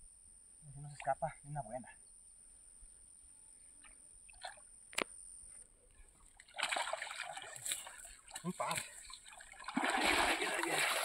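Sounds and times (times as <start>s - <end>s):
water splashing and sloshing: 6.2s - 11.0s.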